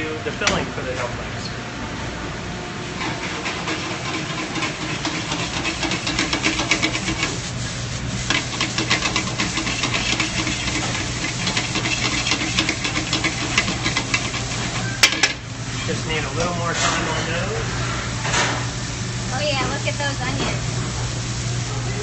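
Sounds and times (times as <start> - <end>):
steady low hum: 0.0 - 22.0
onions sizzling in a pan: 3.8 - 16.7.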